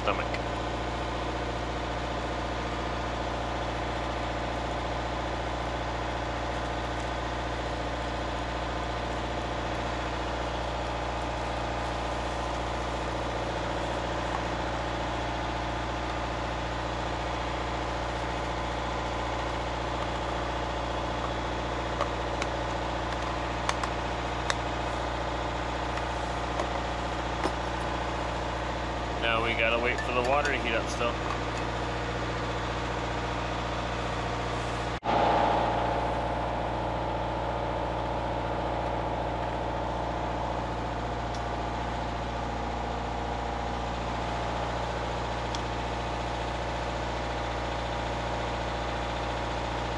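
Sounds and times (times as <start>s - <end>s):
boat engine humming: 0.0s - 49.9s
gear clicking and knocking: 21.2s - 24.9s.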